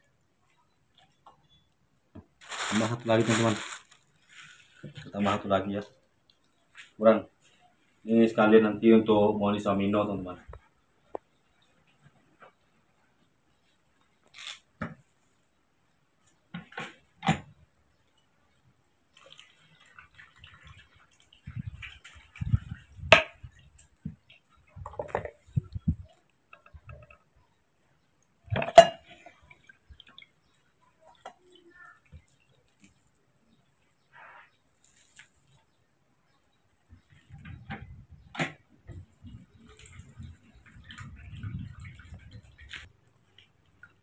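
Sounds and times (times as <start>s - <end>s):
squishing fruit: 0.6s - 7.8s, 34.4s - 35.9s.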